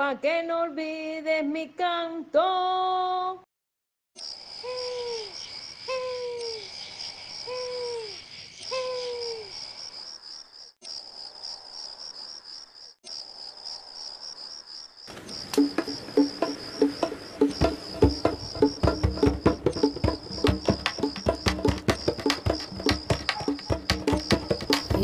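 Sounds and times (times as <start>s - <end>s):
crickets chirping: 4.2s - 25.0s
plucked music with a beat: 15.6s - 25.0s.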